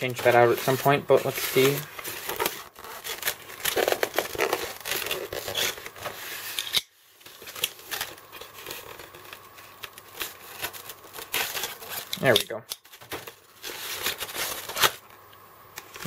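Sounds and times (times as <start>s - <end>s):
foam rubbing and crackling: 0.0s - 6.6s.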